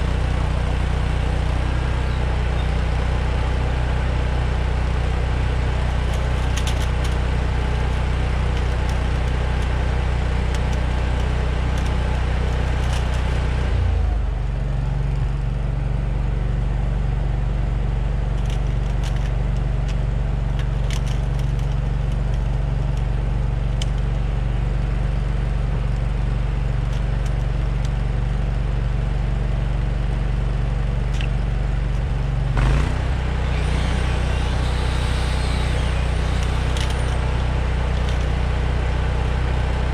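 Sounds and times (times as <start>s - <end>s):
engine idling: 0.0s - 39.9s
plastic hose wrap clicking and rustling: 6.0s - 7.2s, 10.5s - 13.4s, 20.6s - 23.0s, 36.4s - 38.3s.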